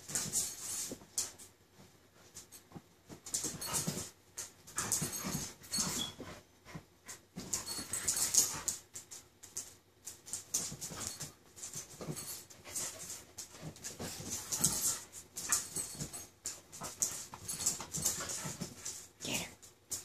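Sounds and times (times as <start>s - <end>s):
dogs huffing and panting: 3.3s - 8.9s, 10.5s - 19.1s.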